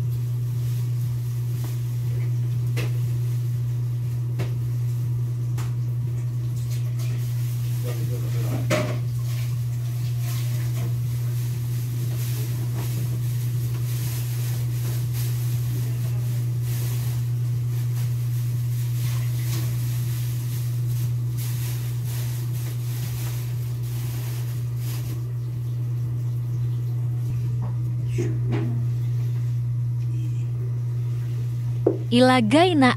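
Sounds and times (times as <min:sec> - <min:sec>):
low droning hum: 0:13.3 - 0:32.9.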